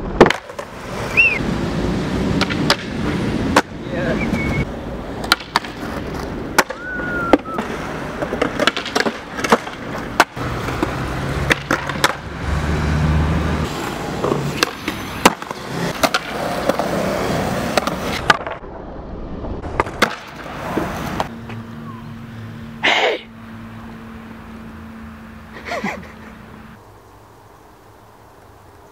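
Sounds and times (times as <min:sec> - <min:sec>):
loud skateboard scraping: 0:00.0 - 0:18.7, 0:19.6 - 0:21.4
skateboard wheels rolling on concrete: 0:00.0 - 0:28.9
skateboard clacks: 0:00.1 - 0:01.4, 0:02.3 - 0:04.6, 0:05.2 - 0:12.3, 0:13.8 - 0:18.6, 0:19.7 - 0:21.4.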